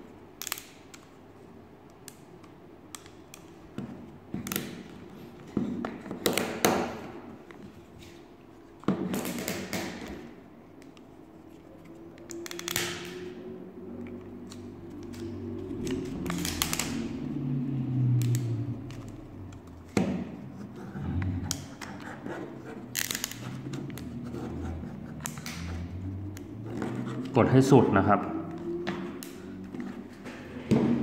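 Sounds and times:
rubbing and handling noise: 10.5 - 12.4.

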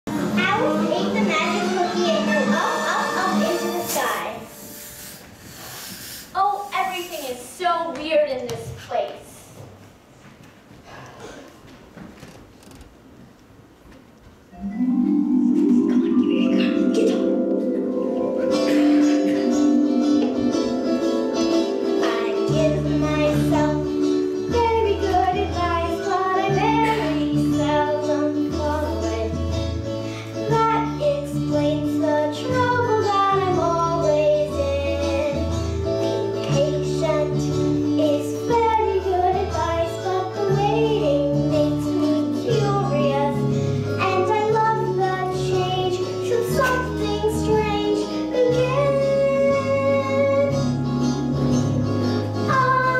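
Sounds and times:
child singing: 0.3 - 4.5, 22.0 - 29.4, 30.5 - 35.6, 36.4 - 50.7, 52.5 - 52.9
bass line: 14.6 - 21.6
plucked guitar: 14.6 - 22.7.

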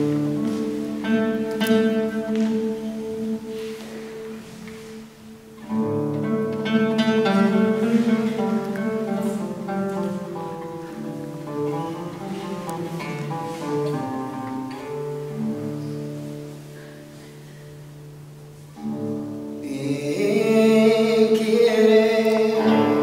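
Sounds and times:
acoustic guitar melody: 0.0 - 23.0.

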